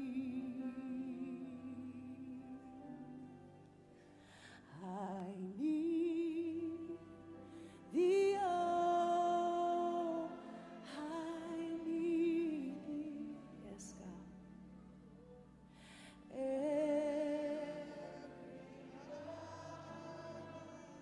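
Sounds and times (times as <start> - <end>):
woman singing into a microphone: 0.0 - 3.2, 4.7 - 7.2, 7.9 - 14.3
soft backing music: 0.0 - 21.0.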